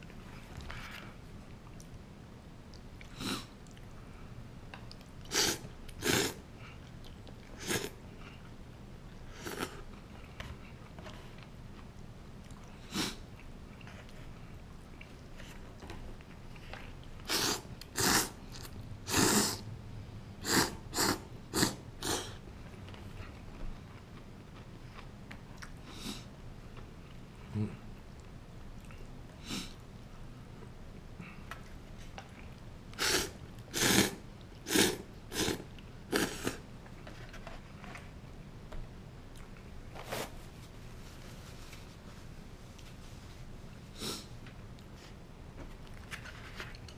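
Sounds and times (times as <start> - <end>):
man slurping noodles: 5.3 - 6.4, 17.2 - 18.4, 19.1 - 19.6, 20.4 - 22.4, 33.0 - 36.6.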